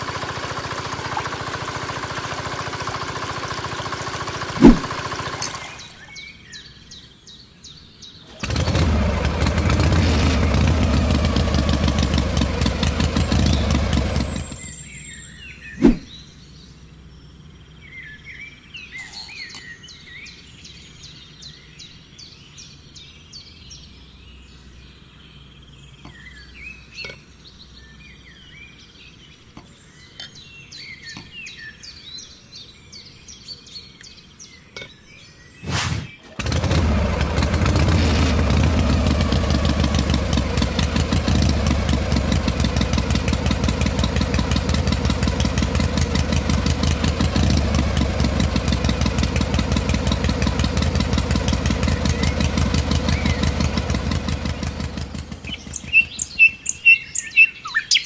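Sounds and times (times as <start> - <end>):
toy pump motor with gushing water: 0.0 - 6.0
birds chirping: 3.6 - 58.0
sharp knock: 4.6 - 5.0, 15.8 - 16.1
sharp click: 4.6 - 5.6, 15.8 - 16.1
loud dense running noise: 36.3 - 56.3.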